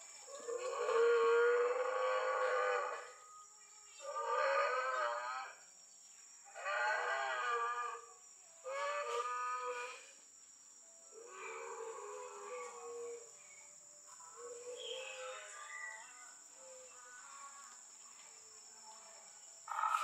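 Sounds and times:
recorded dinosaur bellowing call: 0.4 - 3.2.

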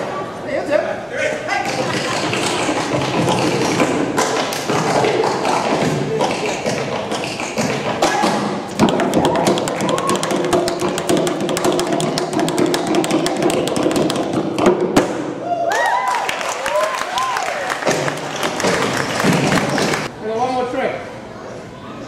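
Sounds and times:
tap dancing on wooden table: 1.6 - 15.0.

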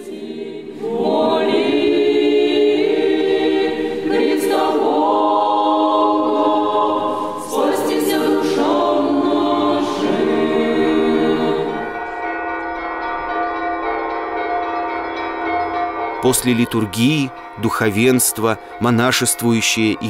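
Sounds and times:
choir singing chant: 0.0 - 12.6.

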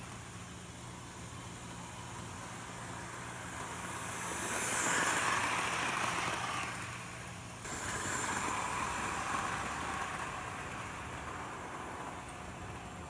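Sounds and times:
model train motor whir: 0.0 - 13.0.

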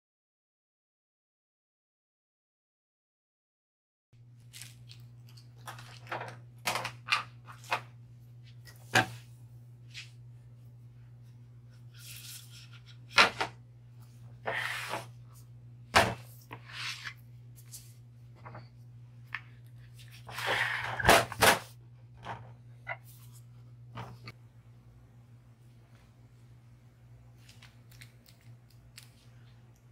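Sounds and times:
steady low hum: 4.2 - 29.9.

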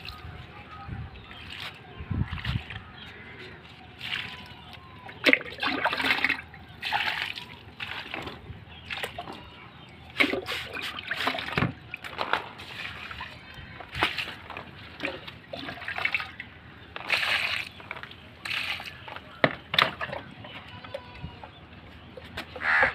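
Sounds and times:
water splashing onto plants: 1.3 - 2.8, 3.9 - 9.4, 10.2 - 16.4, 17.0 - 20.2.

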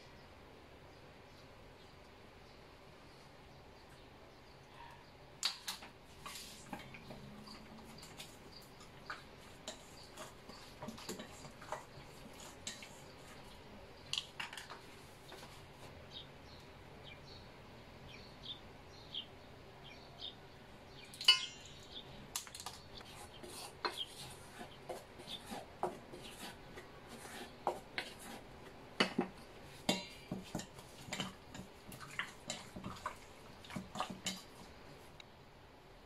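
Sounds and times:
utensils tapping metal bowls: 5.5 - 13.5, 21.1 - 22.8, 29.0 - 34.7
ringing metal clang: 21.2 - 21.8.

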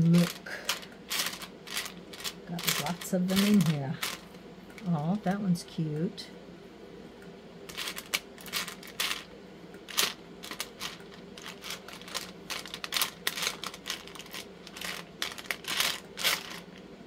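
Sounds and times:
resin charms clicking and rattling: 0.1 - 4.2, 7.7 - 9.3, 9.9 - 16.8.

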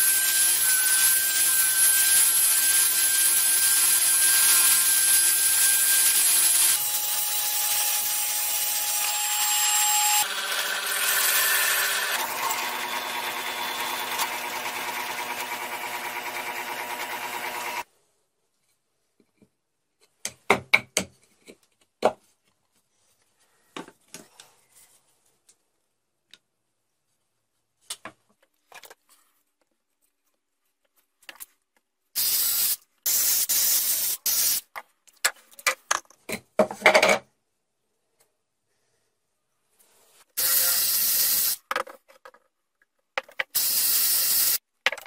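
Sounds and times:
knocks and clicks of handling parts: 19.2 - 22.6, 34.7 - 37.3, 41.7 - 43.5, 44.8 - 45.0.

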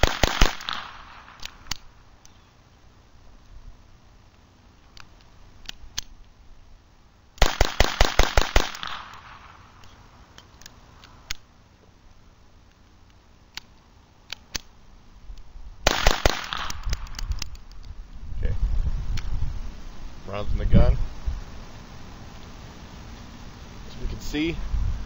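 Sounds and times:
pistol shots: 0.0 - 1.9, 7.4 - 9.7, 15.8 - 17.1.

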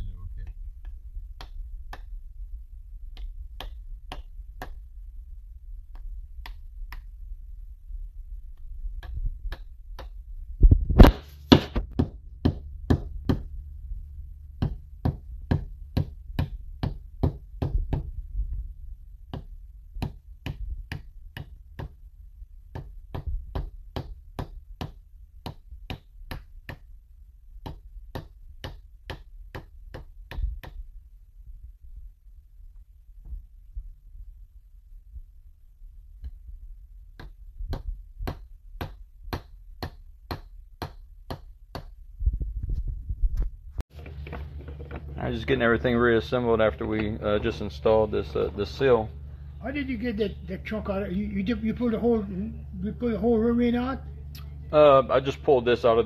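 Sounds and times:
sharp metal knocks: 11.0 - 13.6.

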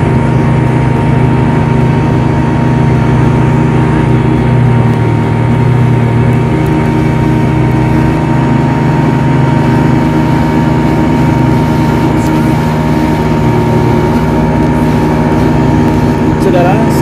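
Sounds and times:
speedboat engine running: 0.0 - 17.0.

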